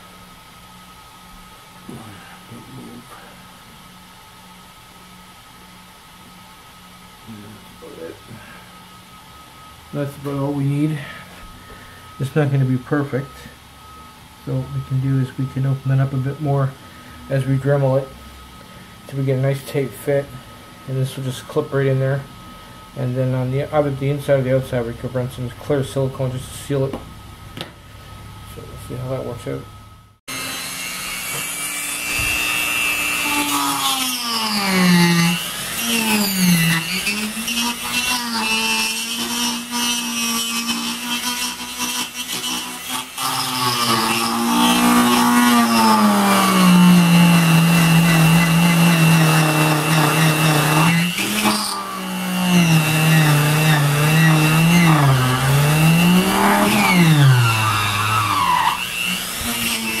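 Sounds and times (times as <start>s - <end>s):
rotary tool whining cutting plastic: 30.3s - 60.0s.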